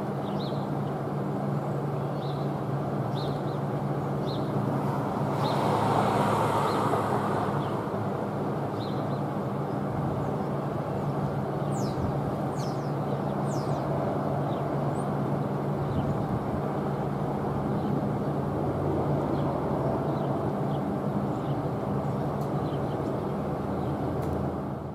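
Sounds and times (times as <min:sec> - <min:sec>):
low hum and rushing noise: 0:00.0 - 0:24.9
small birds chirping: 0:00.2 - 0:07.8, 0:08.7 - 0:15.2, 0:19.3 - 0:24.1.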